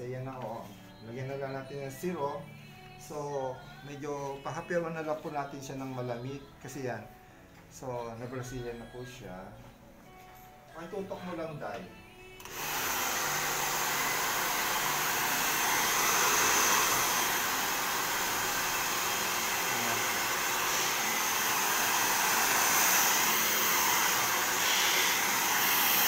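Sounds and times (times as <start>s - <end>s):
hair dryer running: 12.4s - 26.0s.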